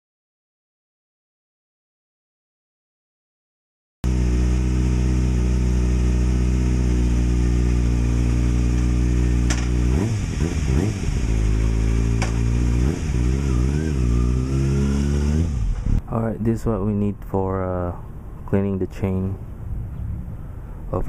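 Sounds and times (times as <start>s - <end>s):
motorcycle engine idling and revving: 4.0s - 16.0s.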